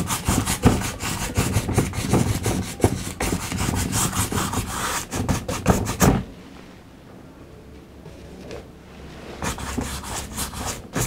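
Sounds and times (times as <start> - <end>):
paintbrush scrubbing on canvas: 9.0 - 11.0.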